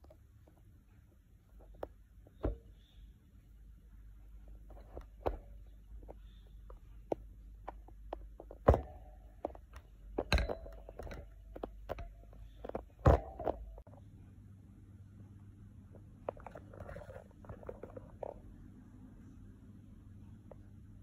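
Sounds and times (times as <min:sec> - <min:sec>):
thumps: 0:01.4 - 0:03.1, 0:03.9 - 0:13.9.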